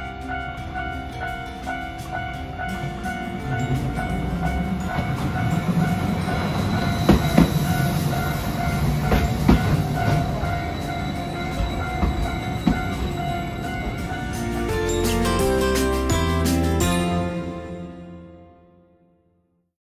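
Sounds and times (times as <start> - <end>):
wheels clicking over rail joints: 0.0 - 15.1
level crossing warning bell: 0.0 - 18.4
tram rumbling past: 0.0 - 18.4.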